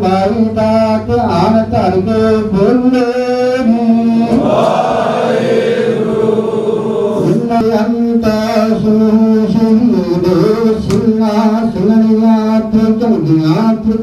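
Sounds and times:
congregation chanting in unison: 3.8s - 7.7s.

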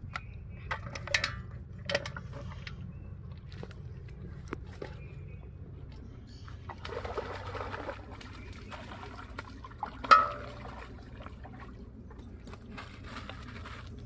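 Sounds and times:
fish thrashing and splashing: 6.6s - 14.0s.

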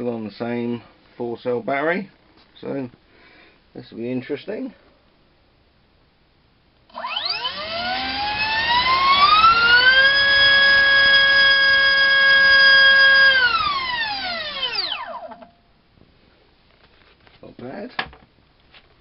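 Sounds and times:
electric motor and propeller whine: 6.9s - 15.3s.

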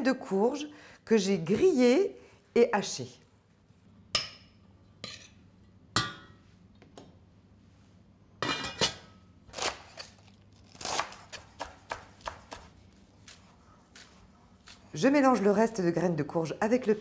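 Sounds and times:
knife chopping on wooden board: 10.8s - 14.8s.

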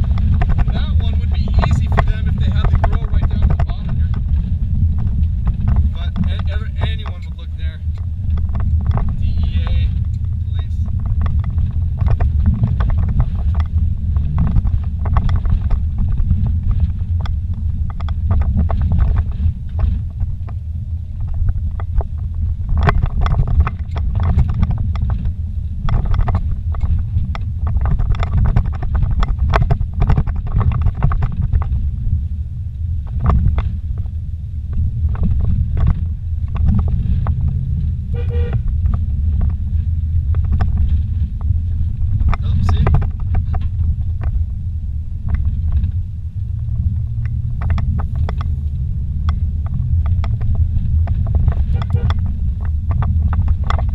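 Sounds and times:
knocks and rattles: 0.0s - 32.2s, 32.9s - 53.9s
engine and tyre rumble: 0.0s - 53.9s.

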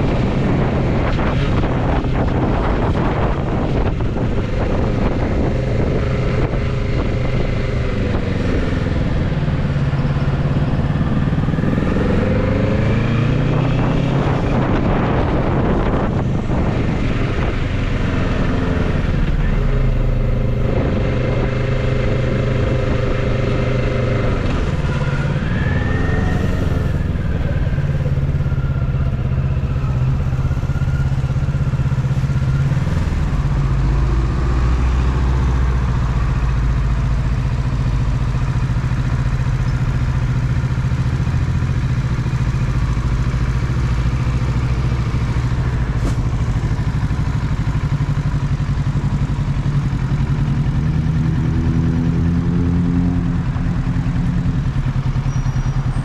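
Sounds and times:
motorcycle engine idling: 35.6s - 51.1s, 53.3s - 56.0s.

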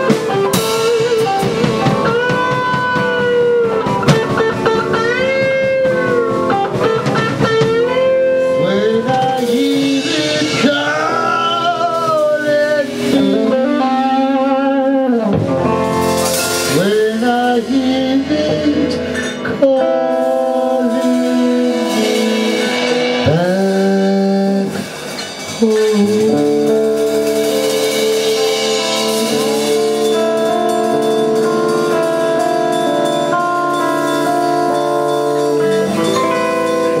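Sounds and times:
guitar: 0.0s - 37.0s
man singing into a microphone: 7.7s - 15.9s, 16.6s - 32.1s.

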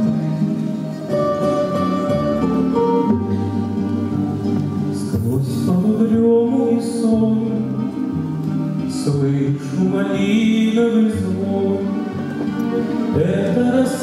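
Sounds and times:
grand piano: 0.0s - 14.0s
man singing into a microphone: 4.9s - 8.2s, 8.9s - 14.0s.

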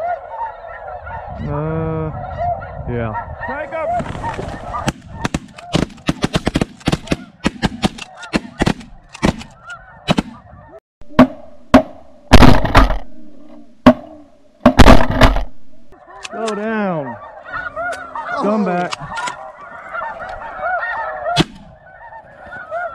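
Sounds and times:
snow geese calling: 0.0s - 5.9s, 7.0s - 10.8s, 12.2s - 22.9s
shotgun fire: 11.1s - 13.1s, 13.8s - 15.6s.

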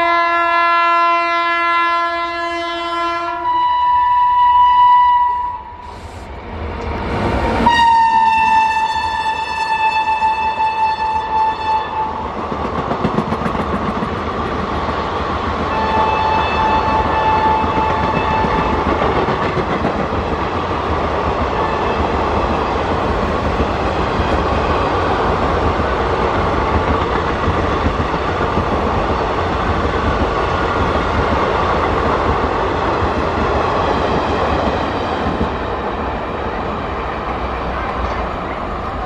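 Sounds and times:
locomotive horn: 0.0s - 6.2s, 7.6s - 12.2s, 15.7s - 18.9s
train coaches rushing past: 5.3s - 39.0s.

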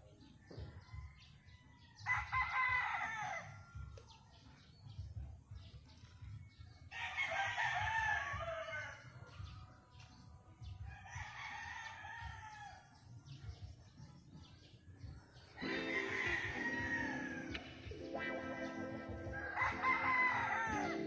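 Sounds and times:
rooster crowing: 15.6s - 18.3s, 19.0s - 21.0s.

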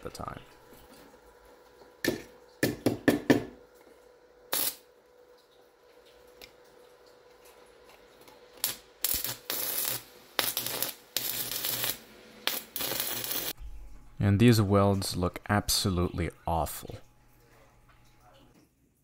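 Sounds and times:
welding arc crackling: 4.5s - 4.9s, 8.5s - 13.6s.

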